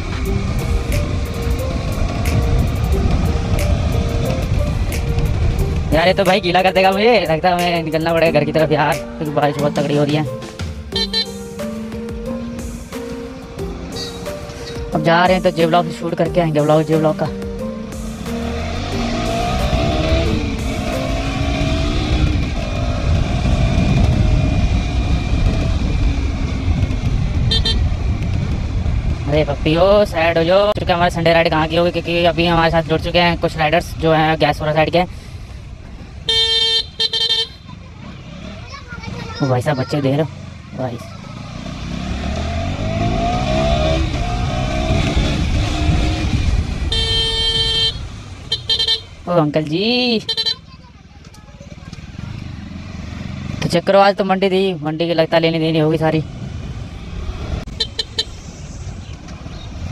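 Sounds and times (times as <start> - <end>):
motorcycle engine running: 0.0 - 59.9
horn beeping: 10.9 - 11.5, 27.4 - 28.0, 36.2 - 37.7, 46.8 - 49.3, 50.2 - 50.7, 57.7 - 58.4
wind rumble on microphone: 22.1 - 33.9, 43.0 - 46.9.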